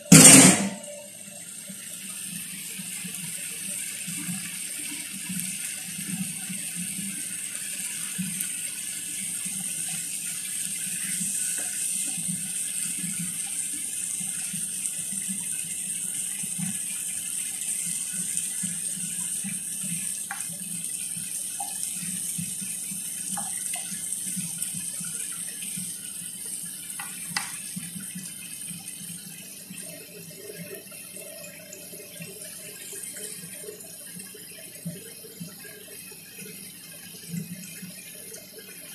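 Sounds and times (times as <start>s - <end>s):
food sizzling in frying pan: 0.0s - 38.8s
wooden spoon clicking in pan: 27.0s - 27.6s.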